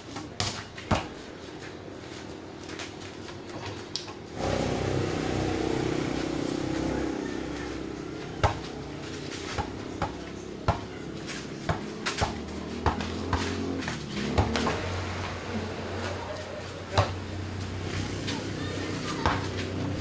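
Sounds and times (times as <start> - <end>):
basketball bouncing on dirt: 0.1 - 1.7, 8.2 - 15.3, 16.9 - 18.4
vehicle engine running: 1.6 - 20.0.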